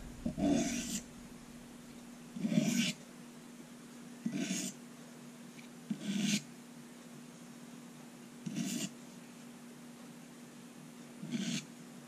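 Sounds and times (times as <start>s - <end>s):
knife blade scraping on stone: 0.2s - 1.1s, 2.4s - 3.0s, 4.3s - 4.8s, 5.9s - 6.4s, 8.5s - 8.9s, 11.2s - 11.7s.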